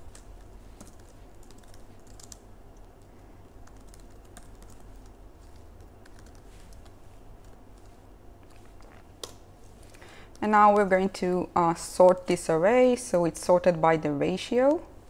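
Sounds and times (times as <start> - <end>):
typing on computer keyboard: 0.0 - 3.0, 3.6 - 7.9
low steady hum: 0.0 - 15.0.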